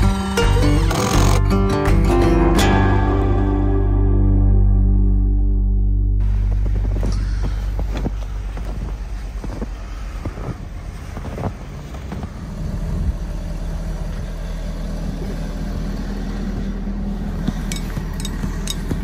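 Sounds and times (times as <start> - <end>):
vehicle engine idling: 0.0 - 19.0
sharp scraping clicks: 0.8 - 1.5
footsteps crunching in snow: 6.2 - 12.6.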